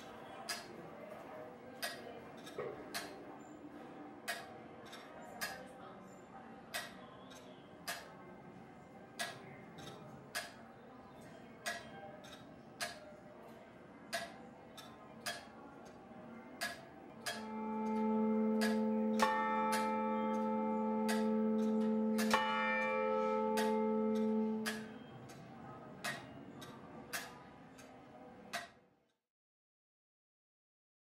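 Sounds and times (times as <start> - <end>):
tower clock ticking: 0.0 - 0.7, 1.8 - 3.2, 4.2 - 5.6, 6.7 - 8.2, 9.2 - 10.7, 11.6 - 13.0, 14.1 - 16.0, 16.6 - 28.8.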